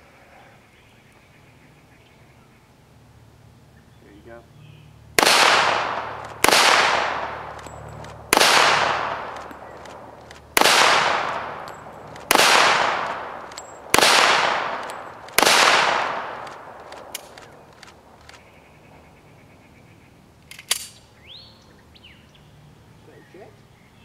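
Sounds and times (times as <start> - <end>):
pistol shots with echo: 5.2 - 17.4.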